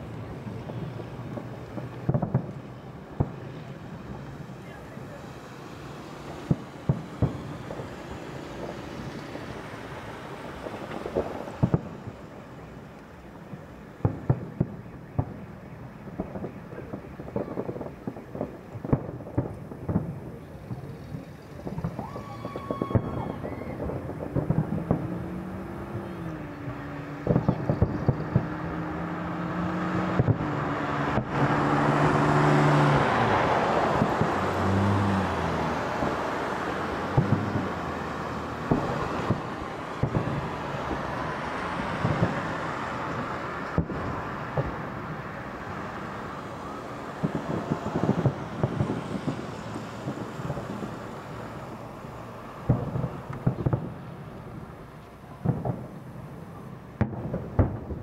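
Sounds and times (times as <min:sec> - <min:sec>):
firework shells bursting: 0:00.0 - 0:15.5, 0:16.1 - 0:29.0, 0:32.9 - 0:58.0.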